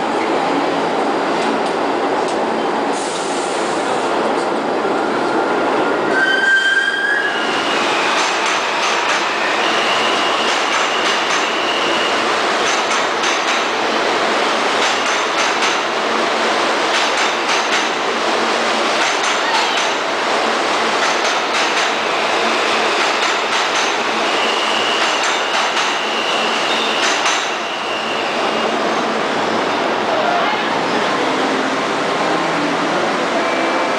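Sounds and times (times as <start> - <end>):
subway train rumble: 0.0 - 33.9
high wheel squeal: 6.0 - 8.3, 9.3 - 12.3, 24.1 - 29.8.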